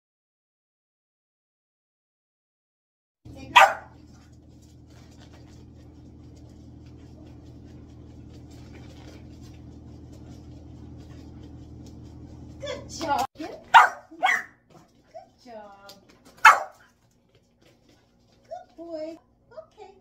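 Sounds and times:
steady low hum: 3.3 - 15.3
dog bark: 3.5 - 4.0, 13.7 - 14.6, 16.4 - 16.9.

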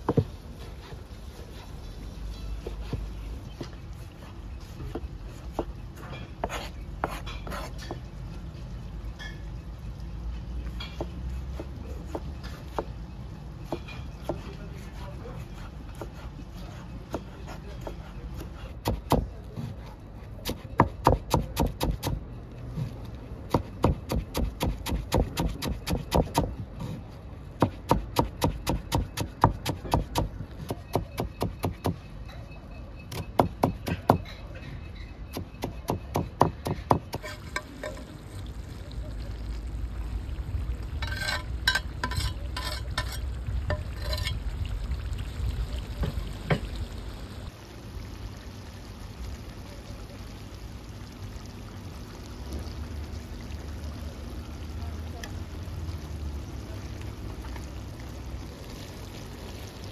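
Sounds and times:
knife chopping on cutting board: 18.8 - 19.3, 20.4 - 22.2, 23.5 - 26.5, 27.6 - 32.0.

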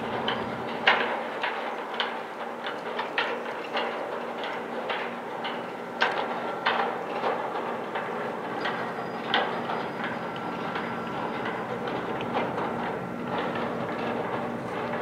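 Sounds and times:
ferry engines humming: 0.0 - 0.9, 5.3 - 15.0.

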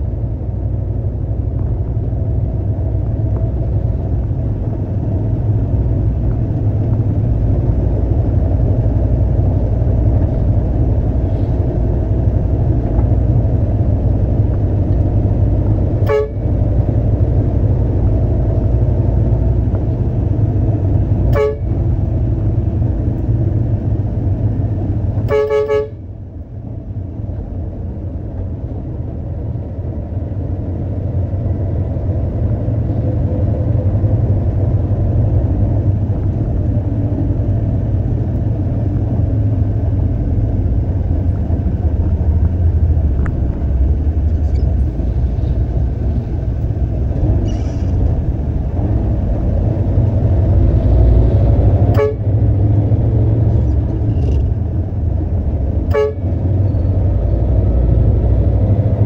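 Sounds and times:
truck engine rumbling: 0.0 - 59.0
vehicle horn toots: 16.0 - 16.5, 21.3 - 21.8, 25.3 - 26.0, 51.9 - 52.4, 55.9 - 56.3.

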